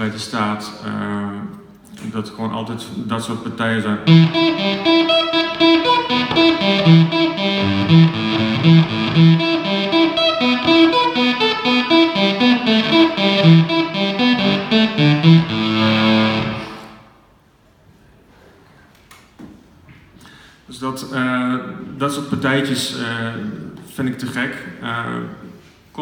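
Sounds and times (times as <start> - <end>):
fuzz electric guitar riff: 4.1 - 17.1.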